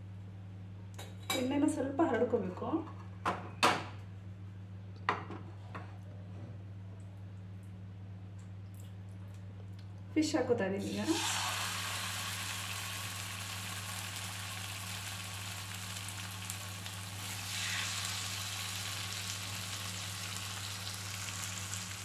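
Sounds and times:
fish sizzling in hot oil: 0:10.9 - 0:22.0.

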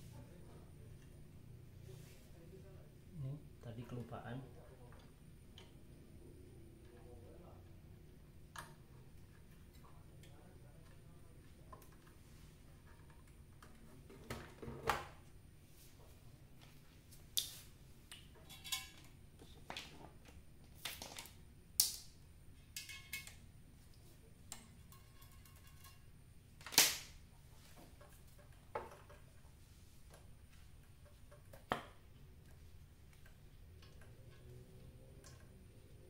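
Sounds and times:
clicks and knocks from handling wiring: 0:27.7 - 0:35.6.

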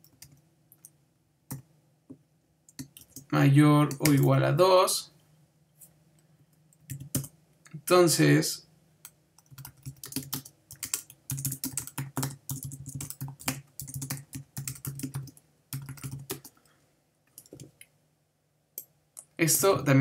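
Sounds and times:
typing on computer keyboard: 0:06.8 - 0:07.3, 0:09.4 - 0:16.6, 0:17.3 - 0:17.8.

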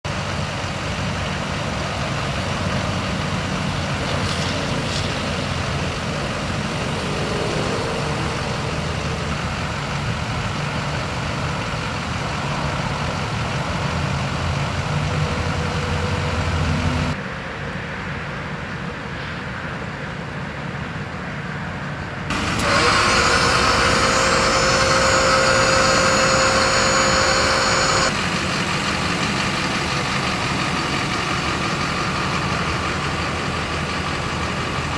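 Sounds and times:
diesel engine idling: 0:00.0 - 0:17.2, 0:22.3 - 0:34.9
hydraulic pump whine: 0:03.7 - 0:12.1, 0:22.3 - 0:34.9.

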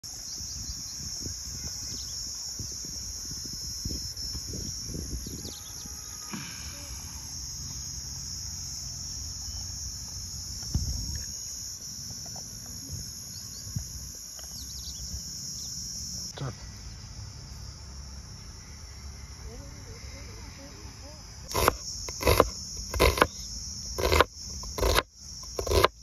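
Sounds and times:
insect chorus chirring: 0:00.0 - 0:26.0
thump: 0:10.6 - 0:11.3.

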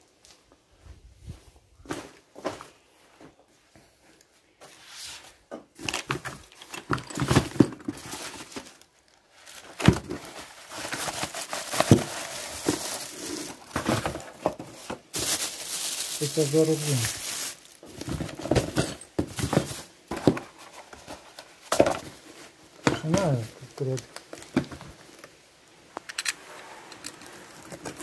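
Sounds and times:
packaging crinkling and rustling: 0:05.8 - 0:25.4, 0:27.1 - 0:28.0.

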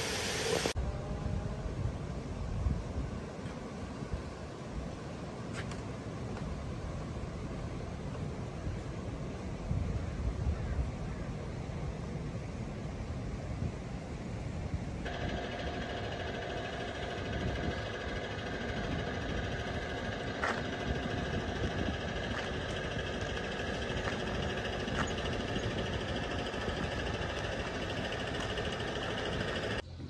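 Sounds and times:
machine humming: 0:15.1 - 0:30.0.

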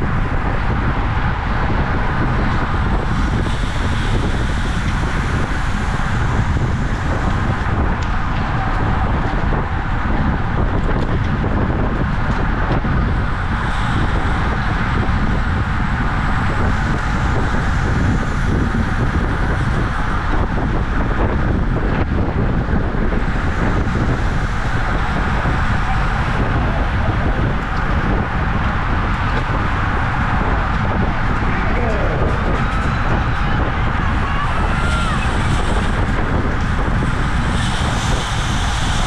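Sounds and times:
wind rush on microphone: 0:00.0 - 0:39.0.

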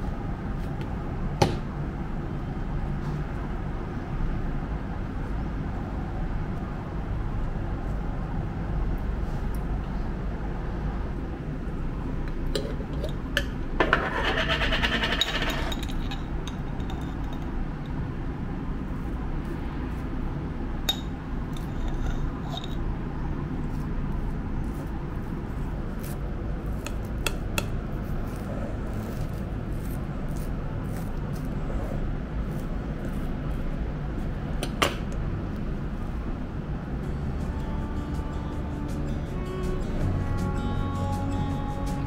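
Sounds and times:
knife scraping jam: 0:23.6 - 0:34.8.

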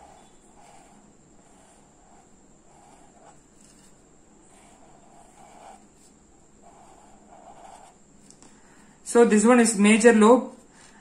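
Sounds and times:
marker scratching on paper: 0:00.0 - 0:08.0.

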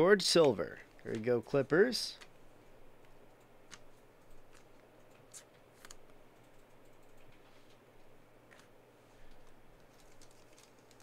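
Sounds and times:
low steady hum: 0:00.0 - 0:11.0
trading cards clicking and rustling: 0:03.6 - 0:06.2, 0:09.3 - 0:11.0.

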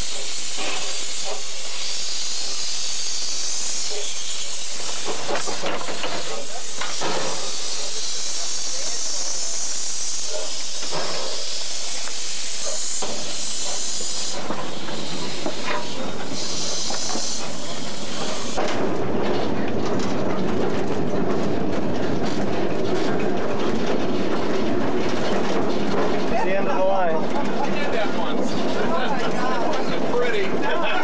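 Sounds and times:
steam locomotive hissing steam: 0:00.0 - 0:19.6
locomotive running rumble: 0:00.0 - 0:31.0
wheels clicking on rails: 0:00.0 - 0:31.0.

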